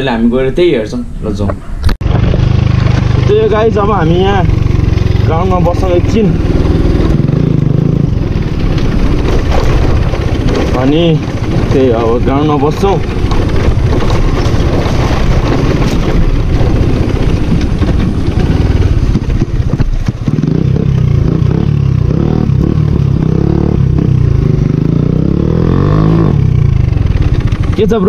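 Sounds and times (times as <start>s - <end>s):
motorcycle engine running loud: 2.0s - 28.0s.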